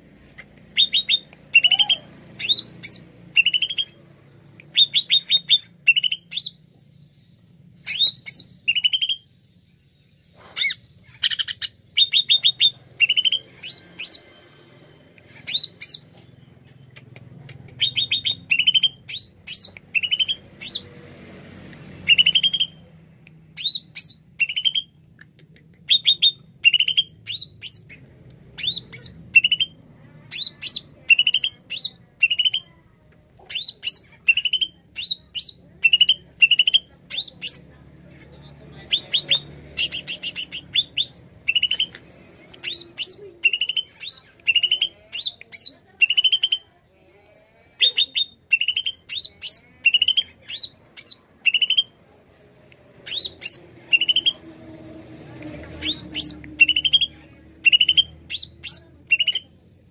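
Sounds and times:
bird singing whistled notes: 0:04.7 - 0:06.6, 0:07.9 - 0:09.3, 0:53.1 - 0:54.4, 0:55.8 - 0:59.4.

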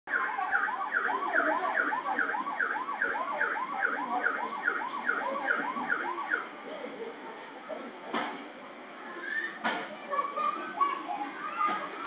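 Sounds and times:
second overlapping siren: 0:00.1 - 0:06.5.

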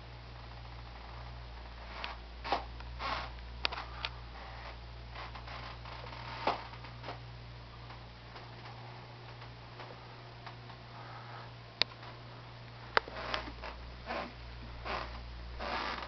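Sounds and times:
steady low hum: 0:00.0 - 0:16.0
wooden floorboards creaking: 0:01.9 - 0:07.2, 0:13.0 - 0:16.0.

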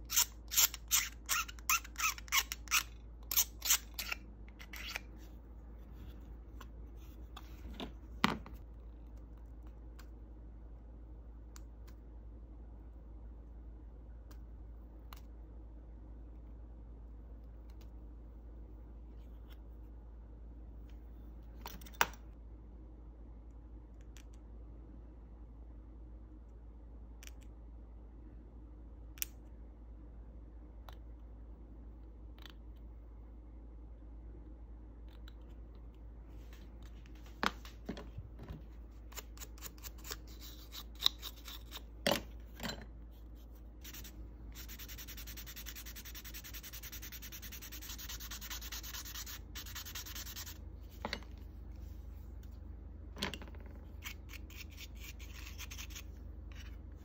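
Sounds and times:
sanding sponge rubbing plastic: 0:43.8 - 0:50.6.

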